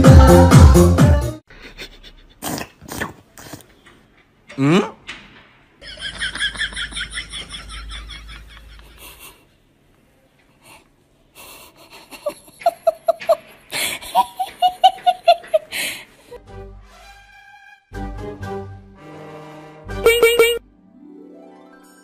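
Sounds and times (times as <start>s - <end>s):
person laughing: 1.5s - 2.4s, 5.8s - 9.4s, 11.5s - 16.4s.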